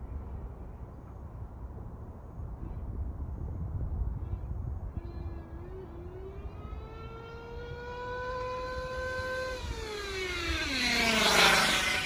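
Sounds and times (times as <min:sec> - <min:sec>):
rc car nitro engine revving: 0:05.0 - 0:12.0.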